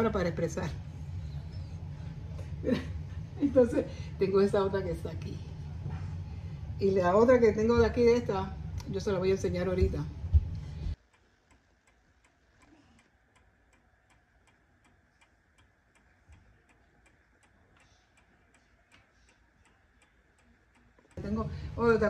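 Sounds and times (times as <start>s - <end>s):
faint regular ticking: 10.9s - 22.0s.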